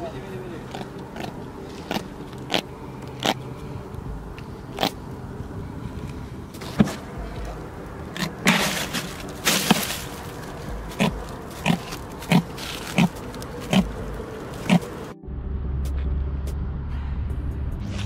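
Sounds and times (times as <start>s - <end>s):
fish grunting: 0.6s - 3.8s, 4.6s - 5.1s, 10.7s - 15.1s
ice crunching and rustling: 6.6s - 15.1s.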